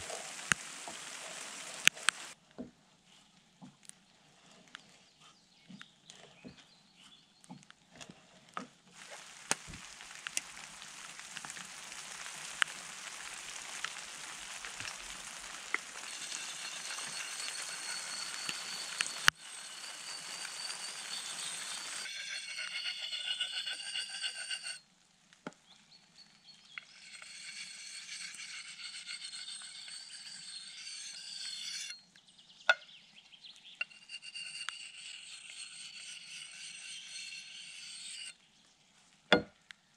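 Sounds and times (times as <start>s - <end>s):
abrasive scraping axe steel: 9.0s - 24.8s, 26.6s - 32.0s, 33.7s - 38.4s.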